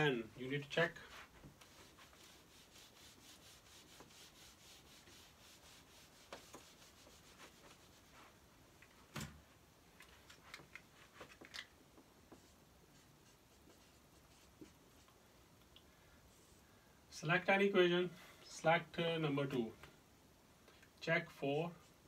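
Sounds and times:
whiteboard being wiped: 0.6 - 8.5, 12.3 - 15.2.

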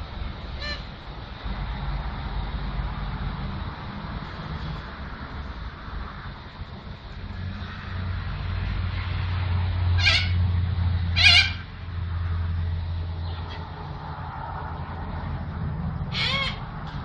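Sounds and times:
steady low rumble: 0.0 - 17.0
cockatoo screeching: 0.6 - 0.9, 10.0 - 10.4, 11.1 - 11.7, 16.1 - 17.0.

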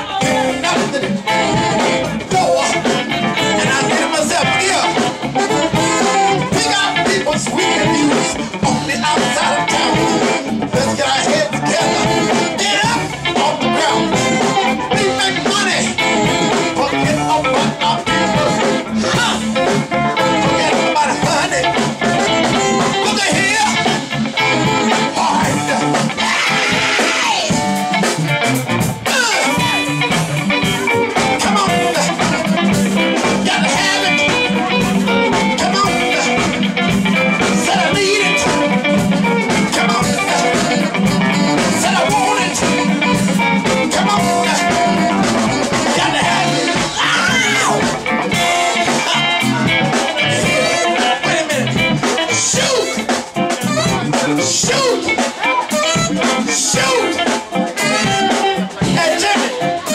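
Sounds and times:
drum kit: 0.0 - 59.9
electric guitar: 0.0 - 59.9
saxophone: 0.0 - 59.9.

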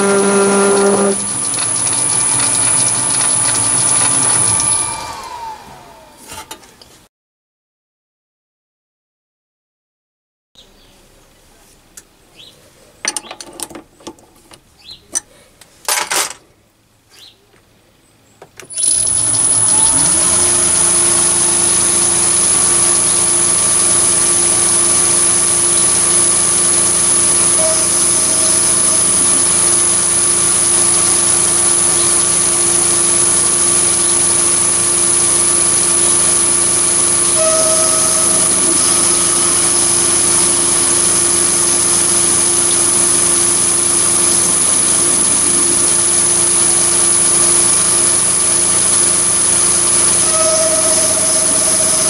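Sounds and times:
lathe motor whining: 0.0 - 6.4, 18.7 - 52.0.

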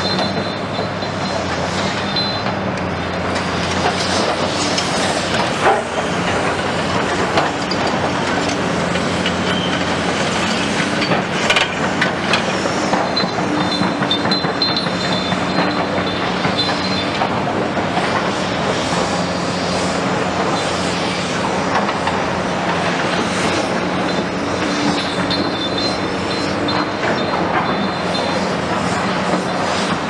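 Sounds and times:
high metallic squeal: 0.0 - 2.5, 9.4 - 11.2, 12.6 - 17.2, 23.6 - 29.8
excavator diesel engine: 0.0 - 30.0.

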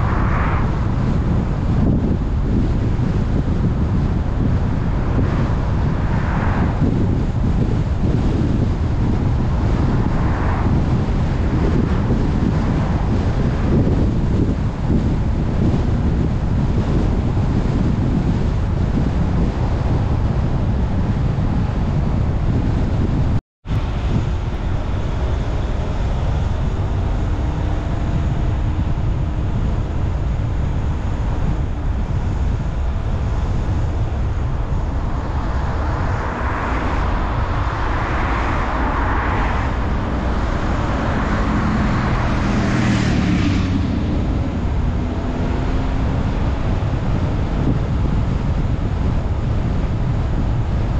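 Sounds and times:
loud rushing swell: 0.0 - 2.4, 23.7 - 47.4
car road and wind noise: 0.0 - 50.9.

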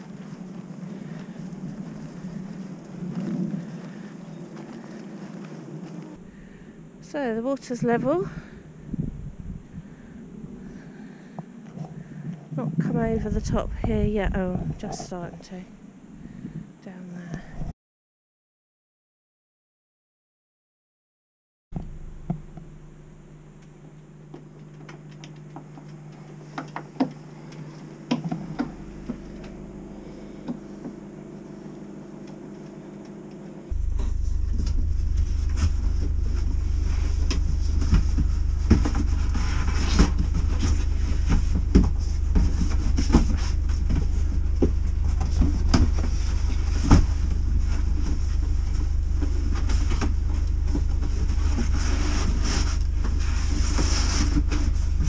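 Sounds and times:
loud steady low rumble: 0.0 - 11.3, 12.0 - 16.7, 21.8 - 55.0.

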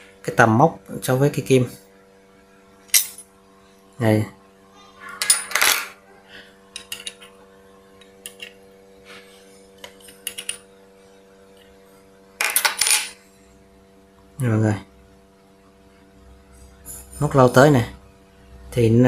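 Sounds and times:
metallic clinks and scrapes of tool: 6.7 - 7.4, 8.2 - 8.6, 9.8 - 10.6, 16.5 - 17.2.

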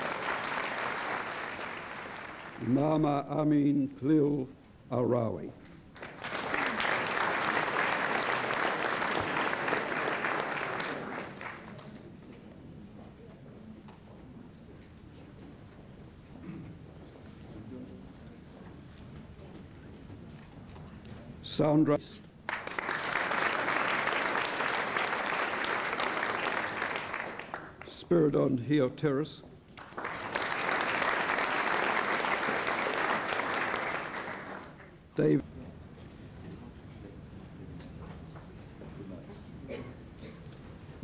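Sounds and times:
audience applauding: 0.0 - 2.8, 6.0 - 12.0, 22.5 - 28.0, 29.8 - 35.0.

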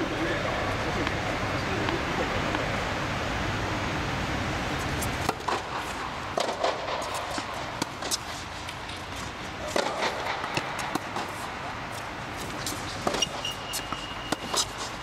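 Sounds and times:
rackets striking tennis ball: 4.8 - 15.0
tennis ball bouncing on hard court: 5.0 - 15.0.

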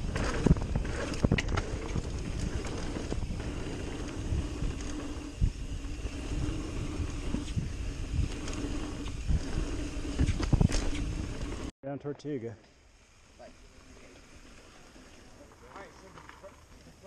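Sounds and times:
wind on microphone: 0.0 - 11.5
bike thumping over bumps: 0.0 - 11.7
bike tyre rumble on dirt: 0.0 - 11.7, 13.0 - 17.0
steady whir: 0.0 - 11.7.

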